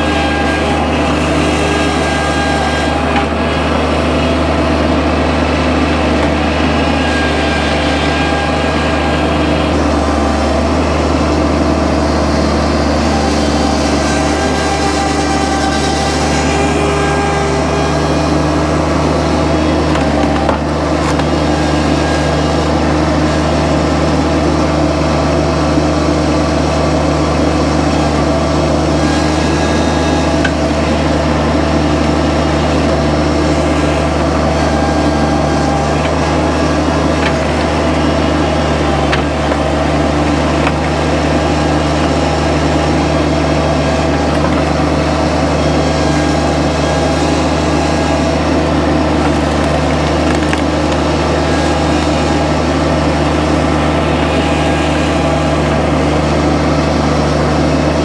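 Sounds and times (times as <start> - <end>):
wood cracking and splitting: 0.0 - 24.4, 26.5 - 54.7
skid steer engine running: 0.0 - 58.0.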